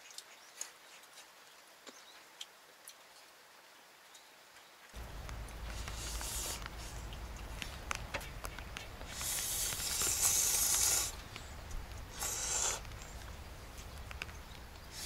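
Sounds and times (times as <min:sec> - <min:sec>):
noodles being slurped: 0:09.0 - 0:11.2, 0:12.1 - 0:13.2.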